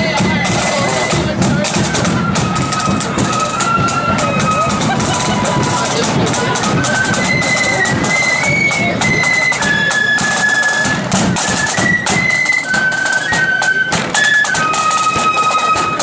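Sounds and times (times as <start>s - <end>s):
bass drum beat: 0.0s - 8.0s
flutes playing melody: 0.0s - 16.0s
snare drum rolls: 0.0s - 16.0s.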